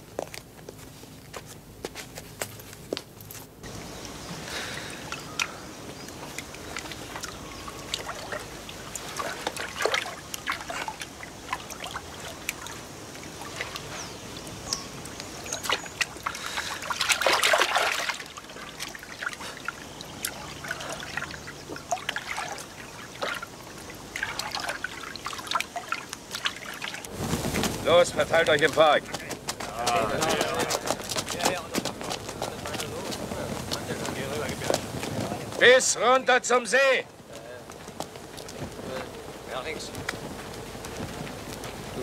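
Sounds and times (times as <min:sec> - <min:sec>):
water drips: 0:03.6 - 0:27.1
oars dipping in water: 0:03.6 - 0:27.8
water splashing around boat: 0:03.6 - 0:36.2.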